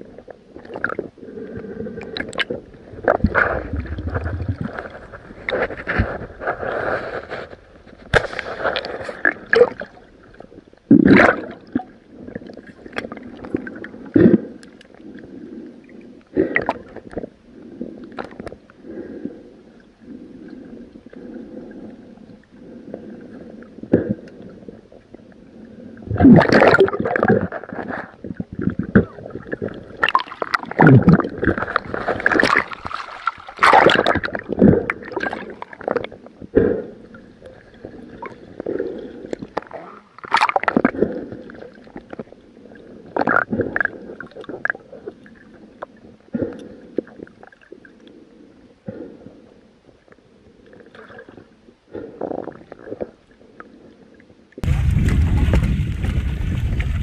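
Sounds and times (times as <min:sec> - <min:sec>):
underwater gurgling and bubbling: 0:00.0 - 0:07.3, 0:08.3 - 0:19.4, 0:20.1 - 0:49.5, 0:50.2 - 0:57.0
water splashing: 0:26.2 - 0:28.0, 0:29.0 - 0:36.0, 0:54.6 - 0:57.0.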